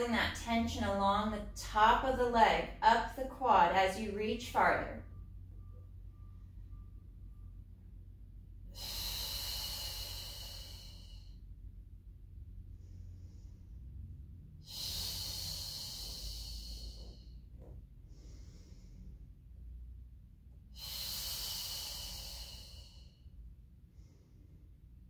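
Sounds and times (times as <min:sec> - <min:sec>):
woman exhaling forcefully: 0:08.7 - 0:11.4, 0:14.6 - 0:17.4, 0:20.7 - 0:23.1
woman inhaling: 0:08.7 - 0:11.6, 0:12.6 - 0:19.6, 0:20.6 - 0:24.9.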